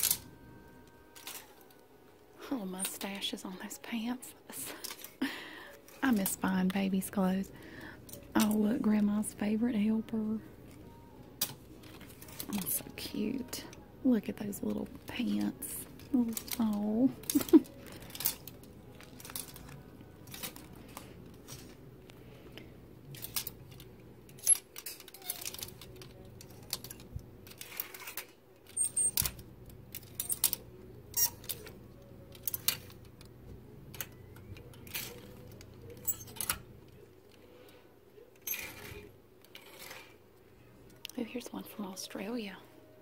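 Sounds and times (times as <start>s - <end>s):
plastic hangers clicking on metal rail: 14.6s - 21.7s, 23.1s - 30.6s.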